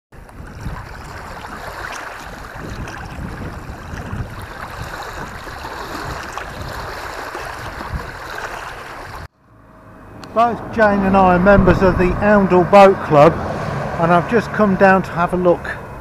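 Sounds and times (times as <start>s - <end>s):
waves breaking on stony shore: 0.2s - 9.3s
wind buffeting microphone: 0.2s - 9.3s, 10.0s - 14.0s.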